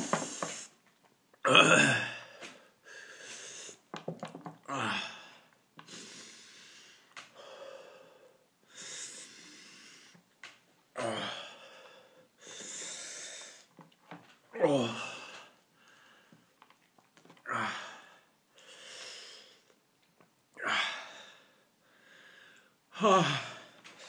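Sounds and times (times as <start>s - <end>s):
man groaning: 1.5s - 2.2s, 11.0s - 11.4s, 14.6s - 15.3s, 23.0s - 23.6s
man breathing hard: 2.2s - 3.8s, 4.8s - 10.2s, 11.0s - 13.7s, 17.5s - 19.7s, 20.6s - 24.0s.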